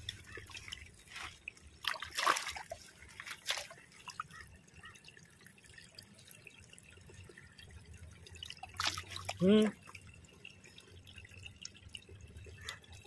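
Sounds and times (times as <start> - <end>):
hand sloshing through water: 0.0 - 4.2
faint dripping and trickling: 0.0 - 13.0
short splashes: 0.3 - 4.2, 8.7 - 9.7.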